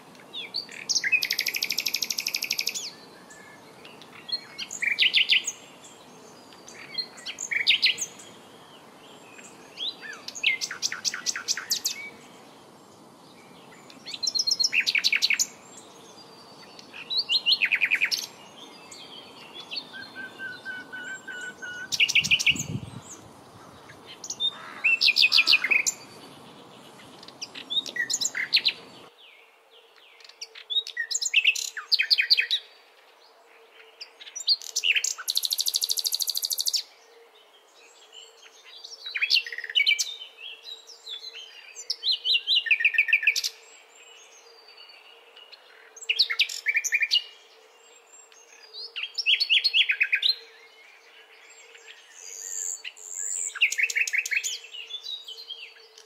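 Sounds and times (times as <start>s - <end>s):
songbirds trilling: 0.0s - 29.2s.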